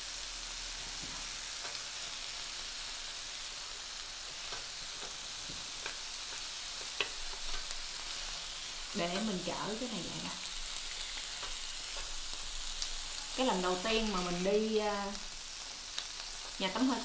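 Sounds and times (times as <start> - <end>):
meat sizzling on grill pan: 0.0 - 17.0
tongs tapping: 4.5 - 5.2, 5.8 - 7.7, 11.4 - 12.1.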